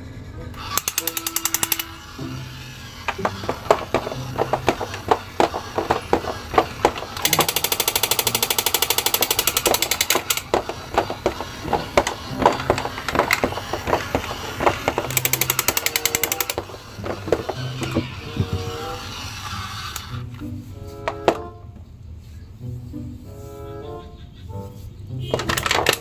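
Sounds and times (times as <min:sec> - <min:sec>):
toy mechanism clicking: 0:00.5 - 0:20.5, 0:25.3 - 0:26.0
rapid toy rattling: 0:00.6 - 0:20.4, 0:25.3 - 0:26.0.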